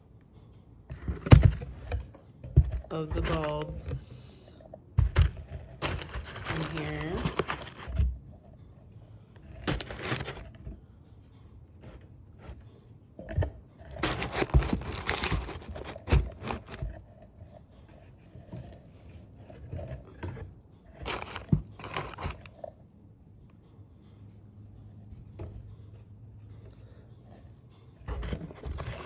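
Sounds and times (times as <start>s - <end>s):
paper crinkling and rustling: 3.1s - 4.0s, 5.1s - 8.1s, 9.5s - 10.7s, 14.0s - 17.0s, 21.0s - 22.5s, 28.1s - 29.0s.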